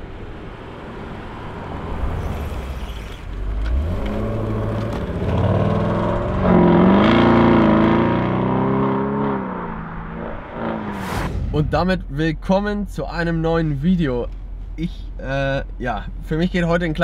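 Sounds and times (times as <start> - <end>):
car engine accelerating past: 1.2 - 11.6.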